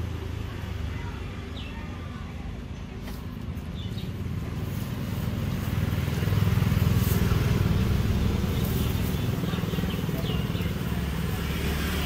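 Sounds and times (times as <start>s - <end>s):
vehicle engine running: 3.0s - 12.0s.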